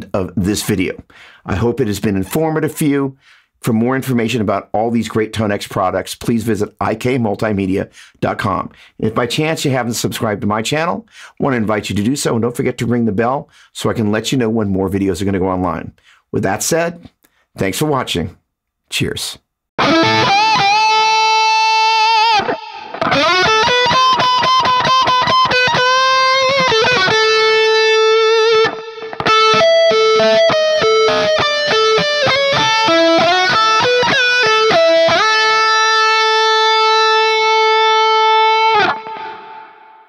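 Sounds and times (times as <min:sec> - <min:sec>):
electric lead guitar: 0:19.8 - 0:40.0.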